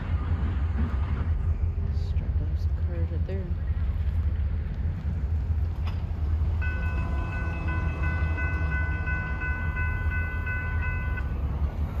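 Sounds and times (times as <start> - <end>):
diesel freight train rumbling: 0.0 - 12.0
railroad crossing bell ringing: 6.6 - 12.0.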